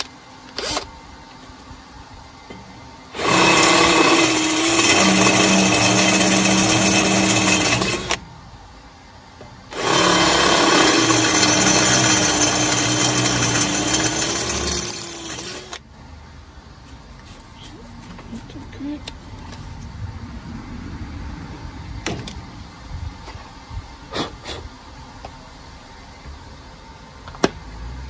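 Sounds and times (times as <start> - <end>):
cordless drill boring into steel: 3.2 - 8.2, 9.7 - 15.8.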